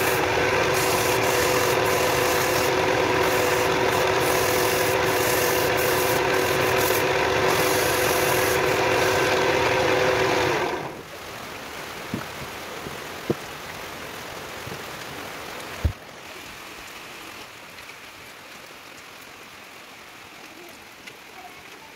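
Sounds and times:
sandpaper rubbing on spinning wood: 0:00.0 - 0:10.7
wood lathe motor hum: 0:00.0 - 0:11.0
faint steady hiss: 0:10.9 - 0:21.9.

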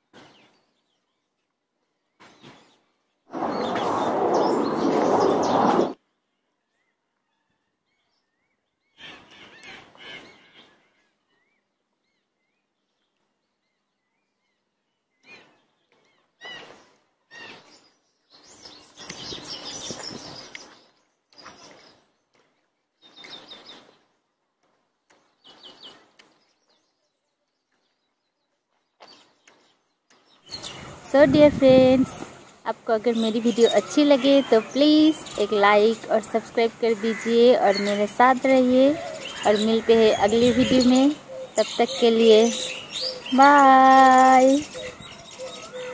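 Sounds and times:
small birds chirping: 0:00.0 - 0:45.9
burst of noise: 0:03.3 - 0:06.0.

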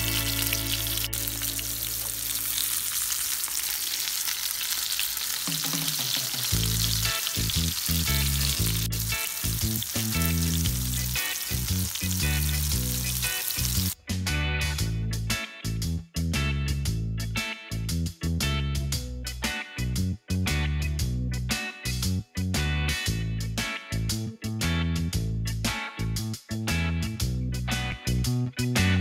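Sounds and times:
background music: 0:00.0 - 0:02.7, 0:05.5 - 0:16.6
fish frying in hot oil: 0:00.0 - 0:14.0.

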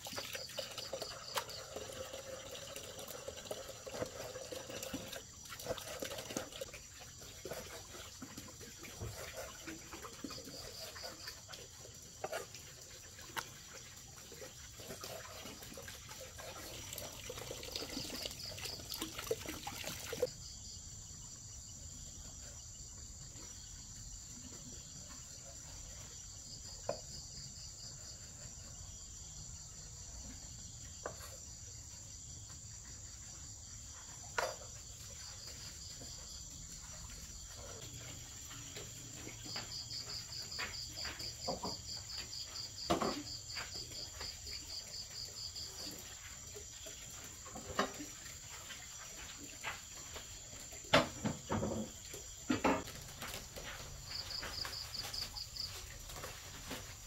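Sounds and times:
crickets chirping: 0:00.0 - 0:57.0
knocks and scrapes: 0:34.1 - 0:44.7, 0:45.4 - 0:57.0.

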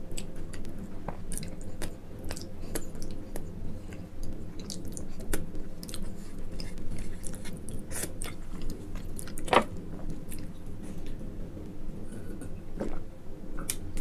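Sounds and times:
person chewing: 0:00.0 - 0:09.5, 0:10.1 - 0:11.2.

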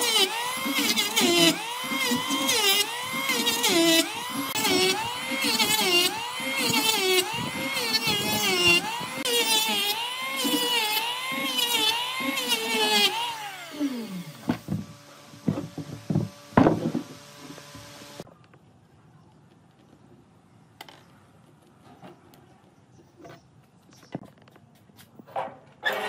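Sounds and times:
power tool cutting wood: 0:00.0 - 0:18.3
sharp knocks: 0:14.5 - 0:17.1.

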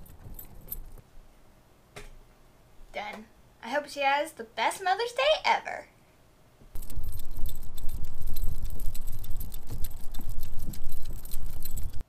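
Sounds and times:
dog leash hardware jingling: 0:00.0 - 0:01.0, 0:06.8 - 0:12.0.

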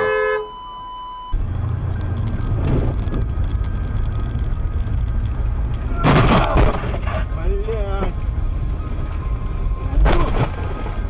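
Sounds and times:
steady beep tone: 0:00.0 - 0:01.4
car driving at highway speed: 0:00.2 - 0:11.0.

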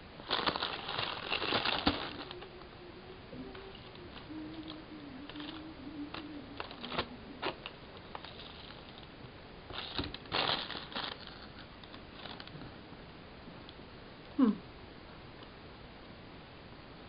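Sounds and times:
faint low wavering hum: 0:00.0 - 0:17.0
loud rustle: 0:00.2 - 0:02.5, 0:09.7 - 0:11.6
paper wrapping crinkling: 0:00.2 - 0:02.6, 0:09.7 - 0:12.6.

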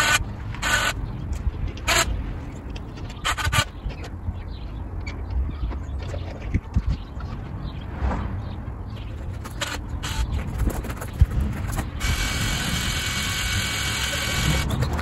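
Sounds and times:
electric winch whining: 0:12.0 - 0:14.7.

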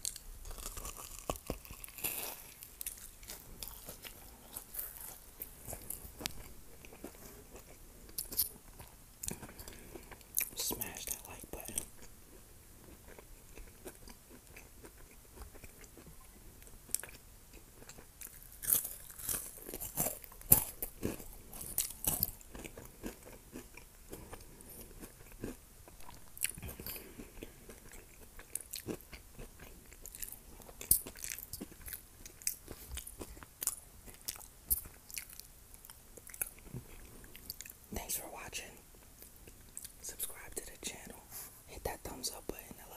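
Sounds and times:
close-miked crunchy chewing: 0:00.0 - 0:42.9.

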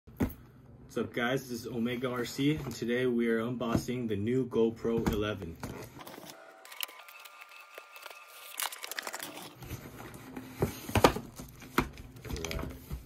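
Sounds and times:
tape and cardboard tearing: 0:05.7 - 0:09.8.

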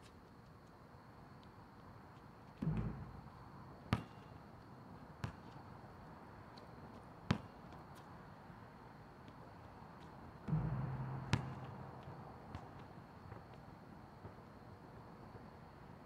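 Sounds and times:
basketball bouncing on asphalt: 0:02.5 - 0:04.5, 0:05.2 - 0:05.6, 0:06.6 - 0:08.1, 0:10.0 - 0:14.4
basketball hitting rim: 0:02.6 - 0:04.2, 0:10.5 - 0:12.8.

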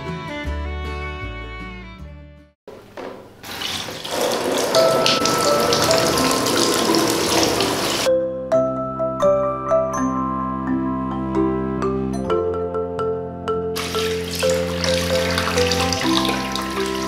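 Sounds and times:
background music: 0:00.0 - 0:02.5, 0:04.6 - 0:17.0
shower spraying into plastic tub: 0:03.1 - 0:08.1, 0:13.8 - 0:17.0.

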